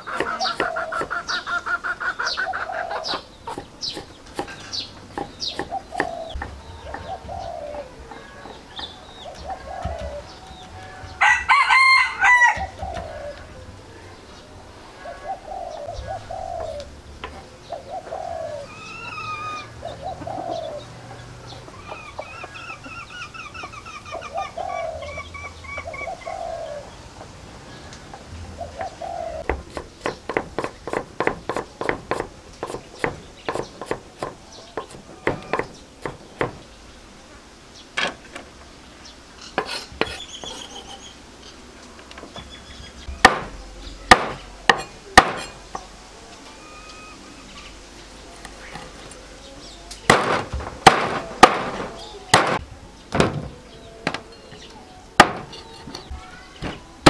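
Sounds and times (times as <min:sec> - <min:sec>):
bird trilling: 0:00.0 - 0:13.5, 0:17.7 - 0:20.9, 0:39.4 - 0:41.2
birds calling: 0:00.0 - 0:57.0
cleaver chopping on wooden board: 0:03.5 - 0:07.1, 0:29.5 - 0:36.6, 0:43.1 - 0:45.6, 0:50.1 - 0:52.6, 0:55.2 - 0:55.5
heavy cleaver chops through bone: 0:43.2 - 0:45.6, 0:50.1 - 0:52.6.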